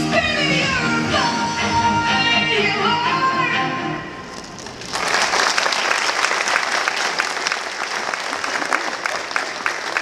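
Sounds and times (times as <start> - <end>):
audience applauding: 4.3 - 10.0.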